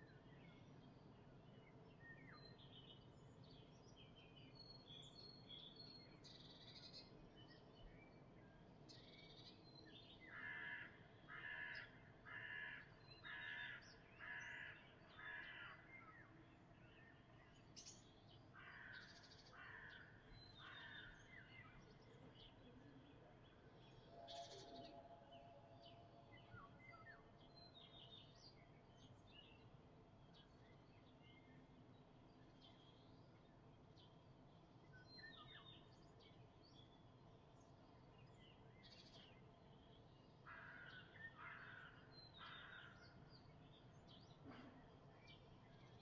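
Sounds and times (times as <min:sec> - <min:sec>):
crow cawing: 0:10.3 - 0:15.8, 0:18.6 - 0:21.1, 0:40.5 - 0:43.0.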